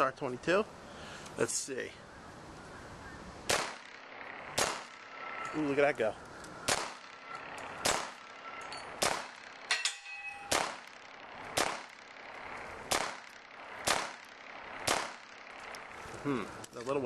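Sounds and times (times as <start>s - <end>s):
pistol shots: 3.4s - 5.3s, 6.6s - 9.8s, 10.4s - 12.3s, 12.9s - 15.6s
metallic ring of struck steel: 9.7s - 10.6s.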